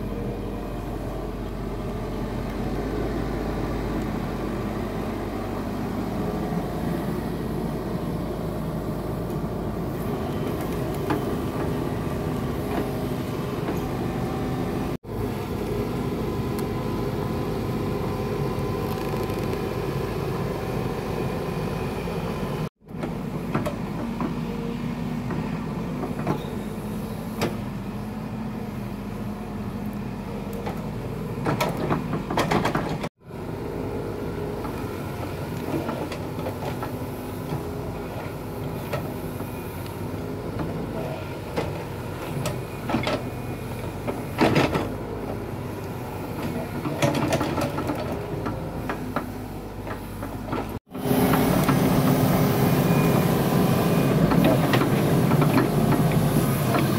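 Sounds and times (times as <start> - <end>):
excavator engine hum: 0.0 - 56.9
excavator bucket knocks and clanks: 31.4 - 33.1, 46.4 - 49.3.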